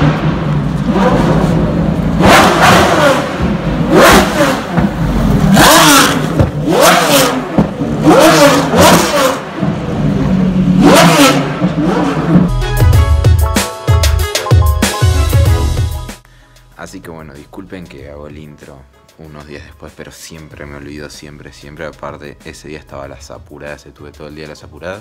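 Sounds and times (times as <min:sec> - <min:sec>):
engine throttle blips: 0:00.0 - 0:12.5
car engine rumbling: 0:00.0 - 0:12.6.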